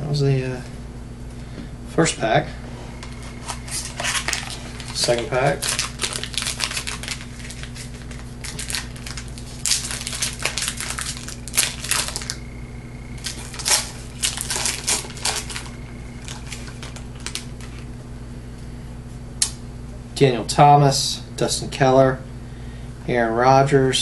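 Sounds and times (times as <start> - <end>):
foil wrapper crinkling and tearing: 3.0 - 12.4, 13.2 - 17.9.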